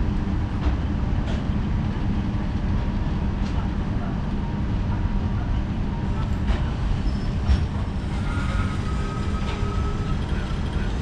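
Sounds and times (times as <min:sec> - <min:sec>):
train wheels rumbling on rails: 0:00.0 - 0:11.0
faint thin squeal: 0:07.0 - 0:10.6.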